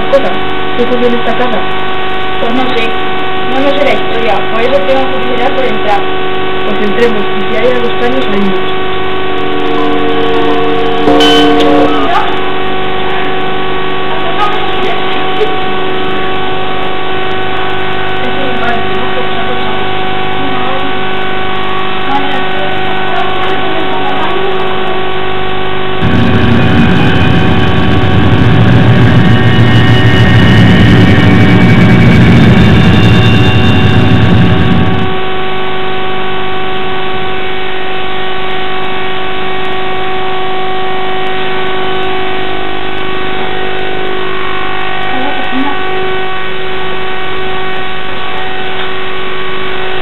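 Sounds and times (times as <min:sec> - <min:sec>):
steady droning tone: 0:00.0 - 0:50.0
loud low rumbling: 0:08.0 - 0:36.0.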